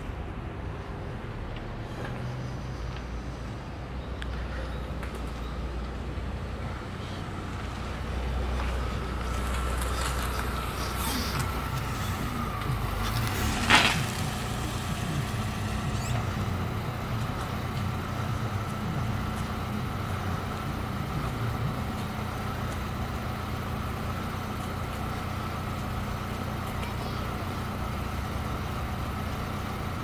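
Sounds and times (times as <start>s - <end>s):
engine idling: 0.0s - 30.0s.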